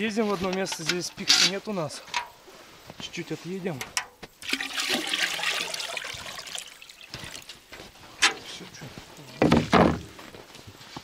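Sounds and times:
water pouring into a metal churn: 0:04.4 - 0:07.4.

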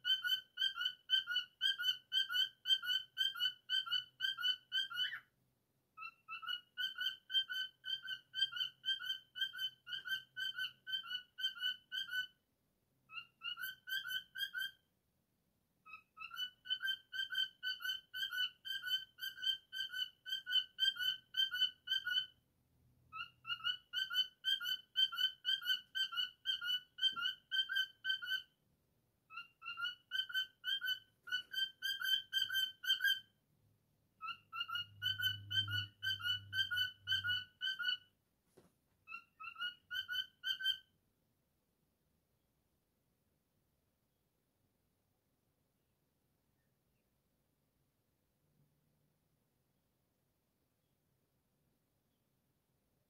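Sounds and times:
cockatiel whistling: 0:00.0 - 0:05.2, 0:06.0 - 0:12.3, 0:13.1 - 0:14.8, 0:15.9 - 0:22.3, 0:23.1 - 0:28.5, 0:29.3 - 0:33.3, 0:34.2 - 0:38.1, 0:39.1 - 0:40.8.

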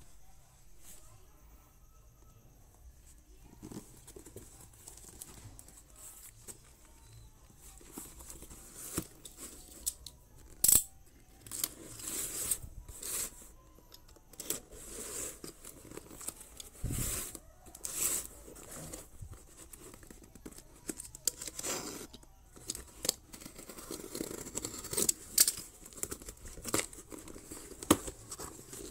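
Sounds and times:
plastic and cardboard rustling tearing: 0:14.4 - 0:28.9.

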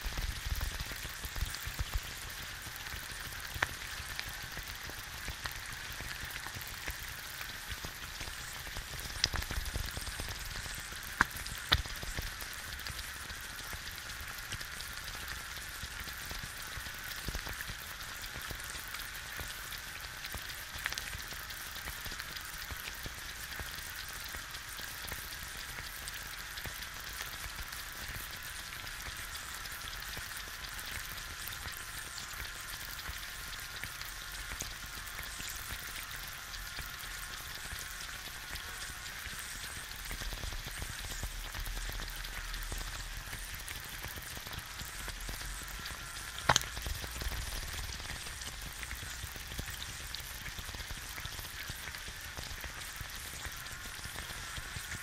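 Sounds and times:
egg frying sizzle: 0:00.0 - 0:55.0
sharp fat pop: 0:46.5 - 0:46.8.

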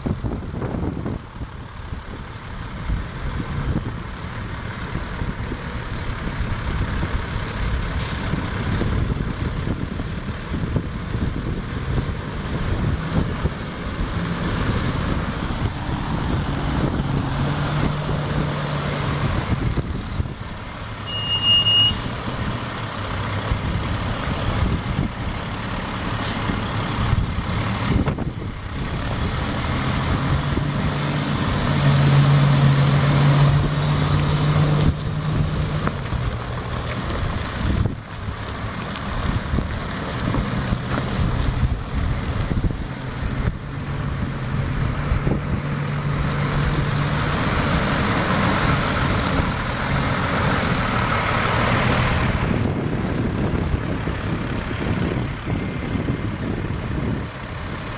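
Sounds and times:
truck diesel engine: 0:00.0 - 0:57.9
short beep: 0:21.0 - 0:22.1.

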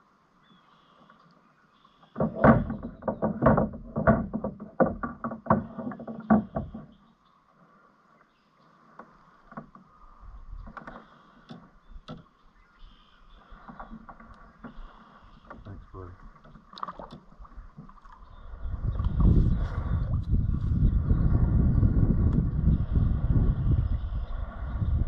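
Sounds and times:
knocks and thuds against boat: 0:02.1 - 0:07.1, 0:10.6 - 0:12.4, 0:13.5 - 0:18.0.

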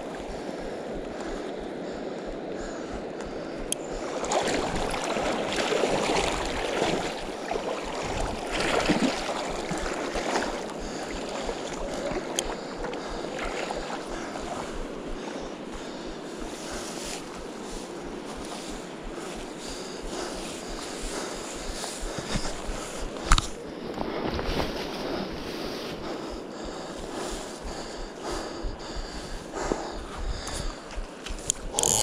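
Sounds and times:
wind on microphone: 0:00.0 - 0:32.0
river current rushing: 0:02.8 - 0:23.3
faint sharp ticks: 0:12.2 - 0:12.6, 0:30.4 - 0:32.0.

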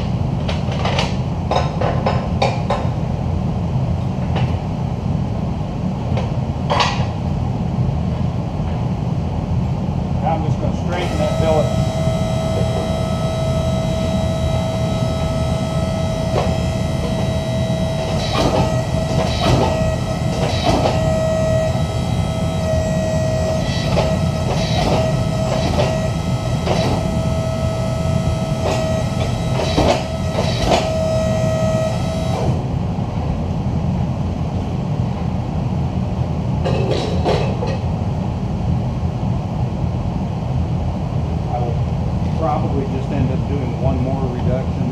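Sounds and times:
high whine: 0:10.2 - 0:34.8
hydraulic pump drone: 0:10.3 - 0:33.8.

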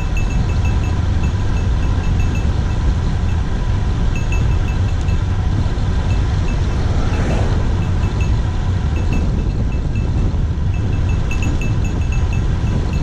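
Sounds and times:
wind rumbling over microphone: 0:00.0 - 0:13.0
brief rushing swell: 0:06.4 - 0:08.5.

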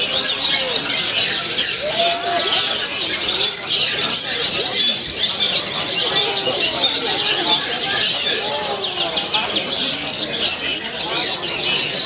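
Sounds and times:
caged birds singing: 0:00.0 - 0:12.0
faint human voices: 0:00.0 - 0:12.0.

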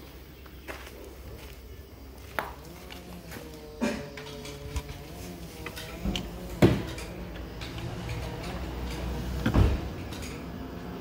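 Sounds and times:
hard parts knocking: 0:05.6 - 0:10.5.

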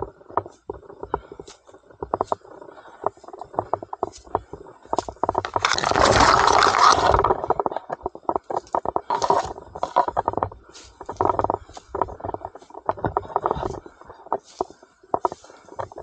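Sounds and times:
crackling handling and footsteps: 0:00.0 - 0:16.0
leaves and twigs brushing camera: 0:03.3 - 0:16.0.

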